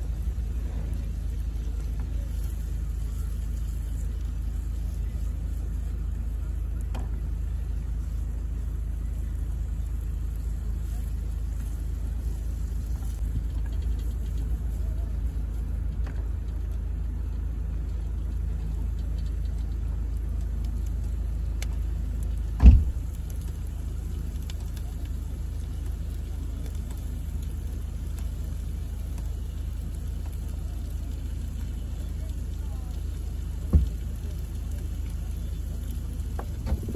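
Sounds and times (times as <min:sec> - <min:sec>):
low rumble: 0:00.0 - 0:36.9
loud thump: 0:22.6 - 0:23.0.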